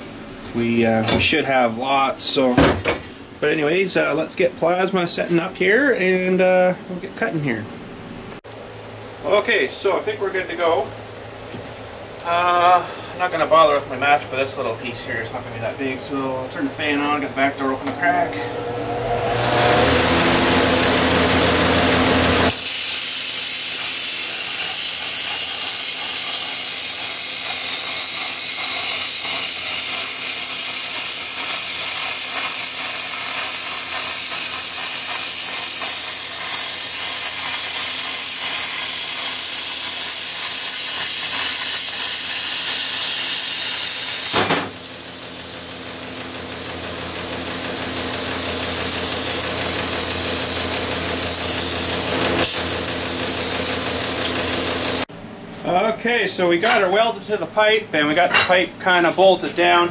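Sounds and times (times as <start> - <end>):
plasma cutter hissing: 22.4 - 55.1.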